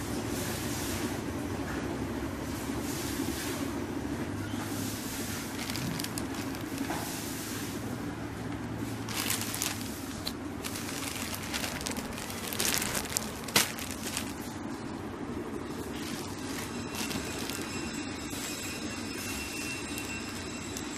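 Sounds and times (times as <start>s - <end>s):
plastic packaging crinkling: 5.3s - 7.3s, 8.8s - 14.9s, 15.5s - 20.9s
plastic bag snapping: 5.6s - 7.1s, 9.0s - 14.6s.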